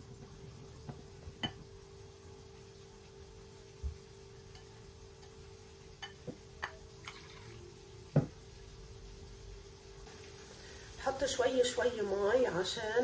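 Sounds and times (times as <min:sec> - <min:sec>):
whisk ticking against bowl: 0:04.5 - 0:05.4, 0:06.0 - 0:06.8
knock on bowl: 0:08.1 - 0:08.4.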